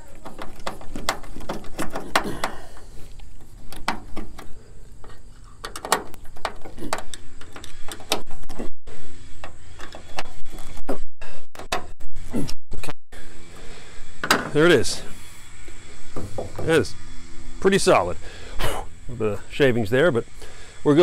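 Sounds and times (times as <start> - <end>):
metal clicks and scrapes: 0.0 - 11.0.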